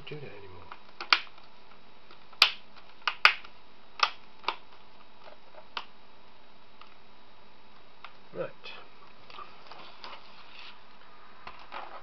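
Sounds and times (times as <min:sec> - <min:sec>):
plastic clips snapping into place: 0:02.3 - 0:05.9.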